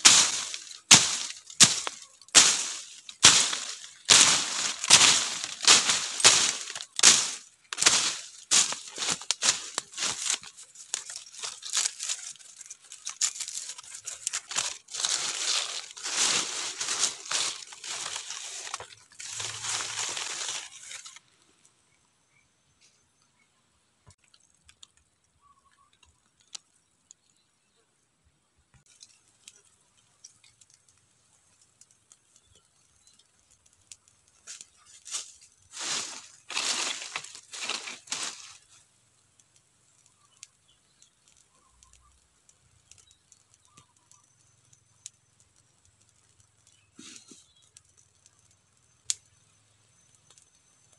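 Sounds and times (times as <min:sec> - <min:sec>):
twigs and leaves crackling: 0:00.0 - 0:21.7, 0:28.7 - 0:50.9
faint ticks: 0:39.2 - 0:50.9.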